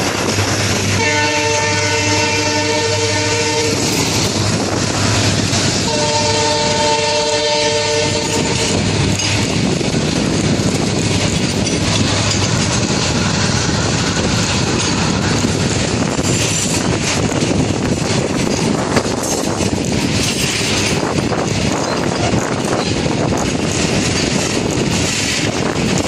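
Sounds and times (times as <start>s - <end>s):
freight train rumble: 0.0s - 26.0s
wagon wheels clattering over rails: 16.2s - 26.0s.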